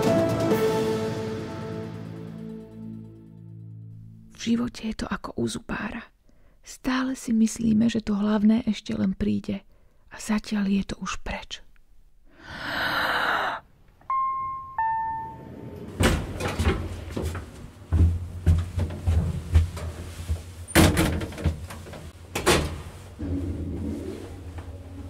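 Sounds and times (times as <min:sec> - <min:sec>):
falling chime notes: 0:14.1 - 0:15.9
knocks and thuds: 0:16.0 - 0:22.1.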